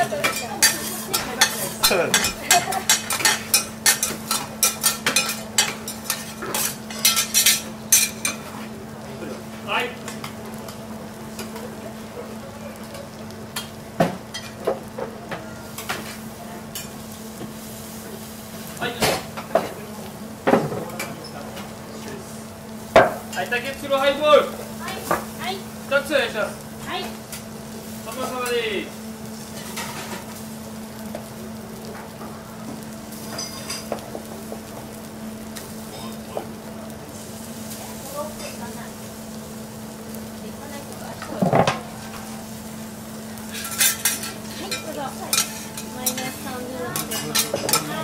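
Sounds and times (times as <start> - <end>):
food sizzling on griddle: 0.0 - 48.0.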